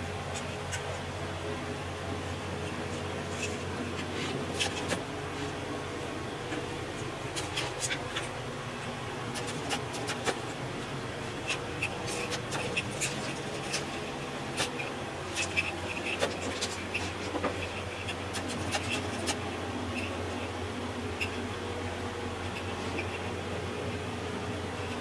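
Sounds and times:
steady low hum: 0.0s - 25.0s
wire scratching on canvas: 11.4s - 20.1s.

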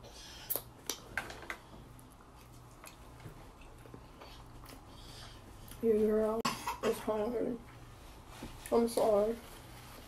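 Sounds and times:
chewing food: 0.5s - 5.8s.

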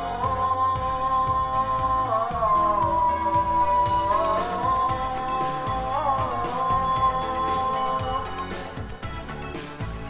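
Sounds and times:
low musical accompaniment: 0.0s - 10.0s.

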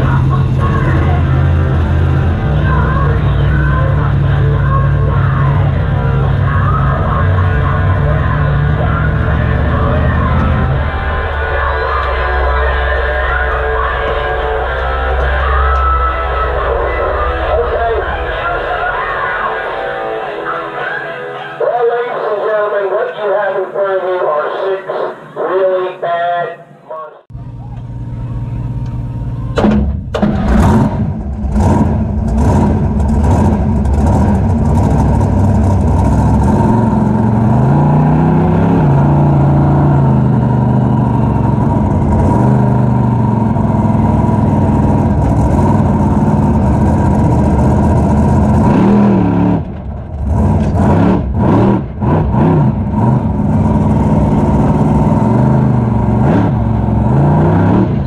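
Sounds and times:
truck engine revving: 0.0s - 24.0s, 27.3s - 58.0s.

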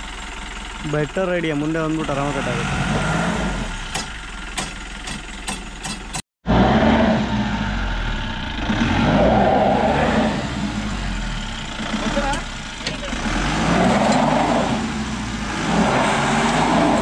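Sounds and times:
car engine running: 0.0s - 17.0s
sharp rattling knocks: 3.9s - 6.2s.

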